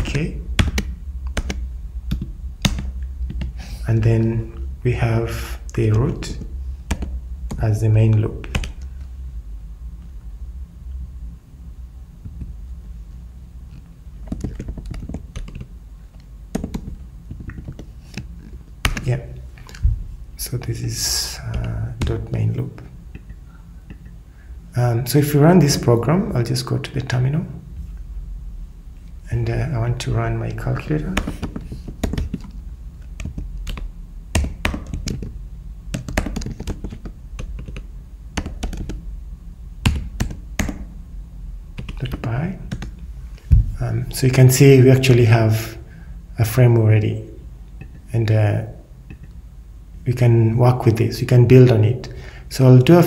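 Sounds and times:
computer keyboard typing: 0.0s - 3.7s, 6.3s - 8.9s, 14.2s - 19.8s, 21.5s - 22.4s, 30.9s - 39.1s, 39.8s - 40.9s, 41.8s - 43.0s
low steady hum: 0.0s - 53.0s.

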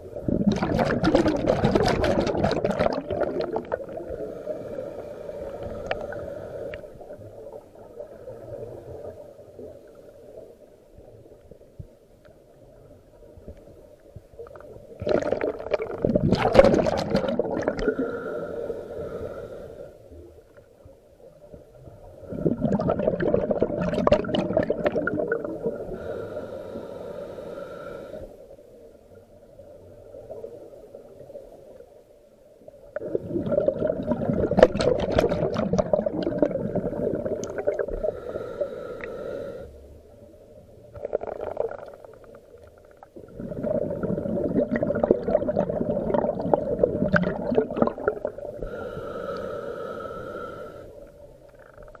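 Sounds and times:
underwater exhaled air bubbling: 0.0s - 10.0s, 14.4s - 20.4s, 21.7s - 28.2s, 32.8s - 52.0s
regulator hiss: 48.6s - 51.2s.

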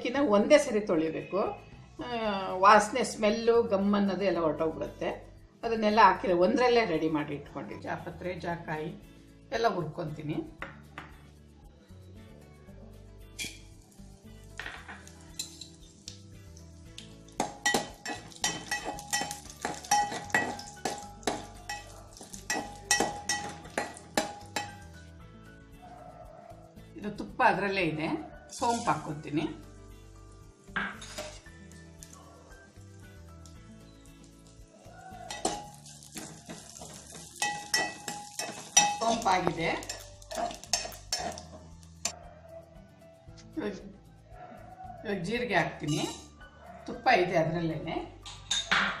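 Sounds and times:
light sizzle: 13.3s - 25.1s, 28.5s - 42.2s
metal spoon scraping pot: 17.6s - 24.9s, 30.8s - 31.6s, 35.2s - 42.2s, 45.8s - 46.3s.

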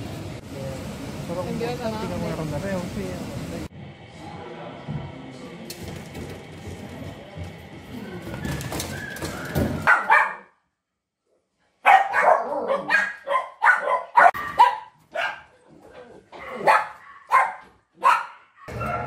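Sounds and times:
dogs barking sharply: 9.7s - 10.6s, 11.8s - 15.6s, 16.3s - 19.0s.

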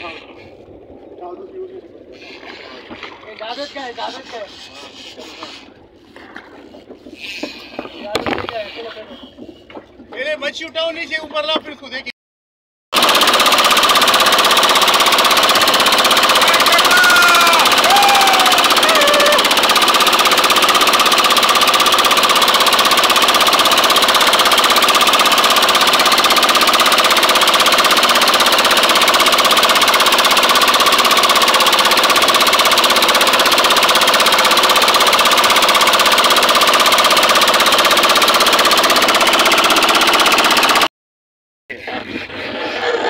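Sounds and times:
boat engine running with whine: 13.0s - 40.9s.

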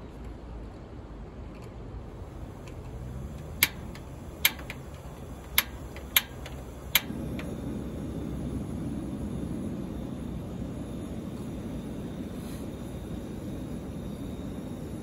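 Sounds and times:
gas flame rushing: 2.1s - 15.0s
stove igniter clicks: 2.5s - 7.6s.

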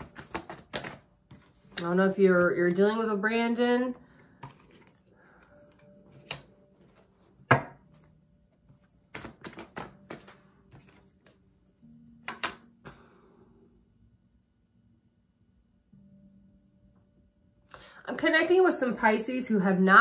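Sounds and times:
cards clicking and tapping: 0.0s - 2.8s, 4.2s - 5.0s, 5.7s - 8.1s, 8.7s - 11.4s, 12.2s - 12.7s.

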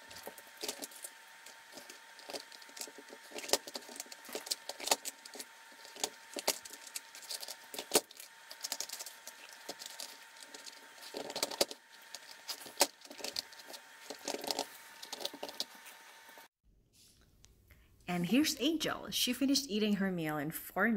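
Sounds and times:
plastic puzzle clacking and rattling: 0.0s - 15.7s.

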